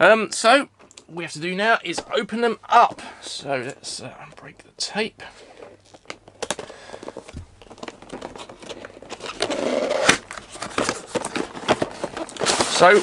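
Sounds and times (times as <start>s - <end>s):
cardboard and tape crinkling: 5.3s - 13.0s
rustling scrape: 6.8s - 13.0s.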